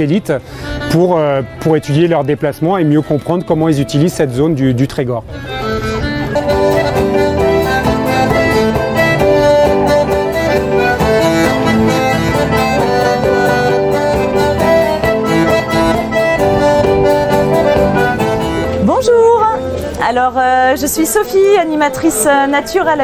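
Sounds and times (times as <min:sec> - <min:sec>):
button accordions: 0:00.0 - 0:04.6, 0:05.3 - 0:20.2
acoustic guitar accompaniment: 0:05.2 - 0:23.0.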